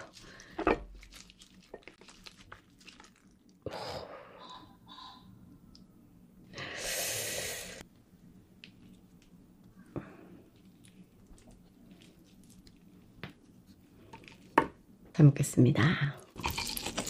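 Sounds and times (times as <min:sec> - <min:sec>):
sticky wet food handling: 0:00.0 - 0:03.6, 0:07.9 - 0:14.6.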